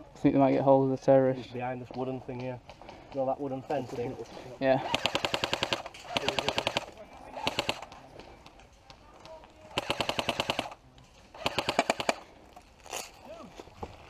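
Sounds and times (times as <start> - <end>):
airsoft rifle automatic fire: 4.8 - 8.0, 9.7 - 12.3.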